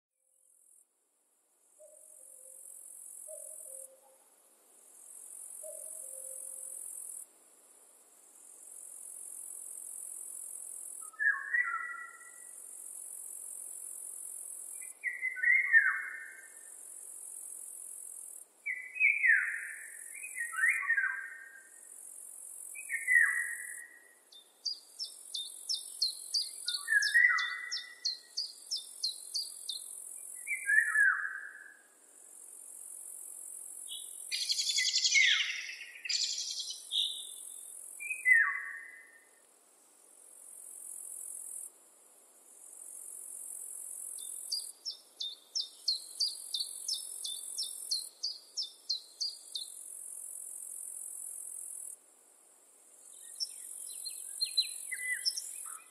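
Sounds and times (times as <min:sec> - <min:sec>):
insects stridulating: 0:08.3 - 0:55.9
down-slurred whistled bird calls: 0:11.0 - 0:12.4, 0:18.7 - 0:21.6, 0:22.8 - 0:29.8, 0:30.4 - 0:31.7, 0:34.3 - 0:37.4, 0:38.0 - 0:39.2, 0:53.3 - 0:55.9
songbirds singing: 0:11.0 - 0:12.4, 0:14.8 - 0:16.6, 0:18.7 - 0:21.8, 0:22.8 - 0:31.8, 0:33.9 - 0:39.2, 0:44.1 - 0:49.8, 0:53.1 - 0:55.9.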